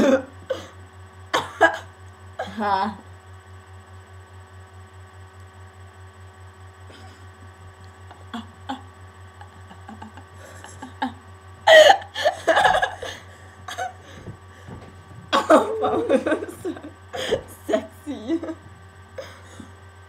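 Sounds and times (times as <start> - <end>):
electrical hum: 0.0 - 20.0
girls laughing: 9.4 - 18.6.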